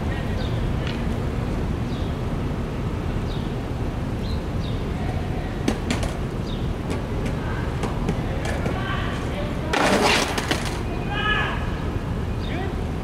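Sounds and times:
low outdoor rumble: 0:00.0 - 0:13.0
skateboard clacking on concrete: 0:05.6 - 0:10.9.

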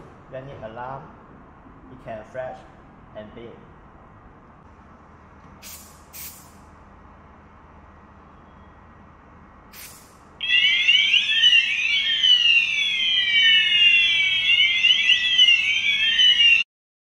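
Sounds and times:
aerosol spray hiss: 0:05.6 - 0:06.6, 0:09.7 - 0:10.1
high sweeping electronic siren: 0:10.4 - 0:16.7.

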